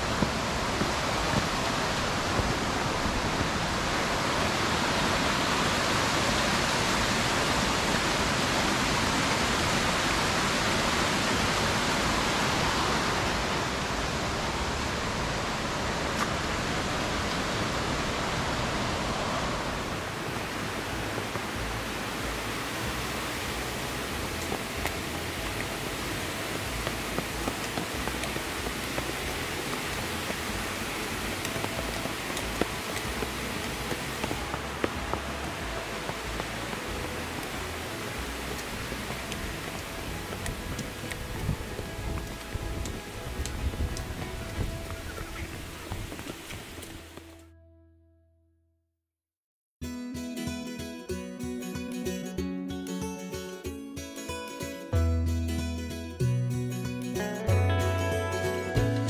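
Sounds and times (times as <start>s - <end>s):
creek flowing over stones: 0.0s - 47.4s.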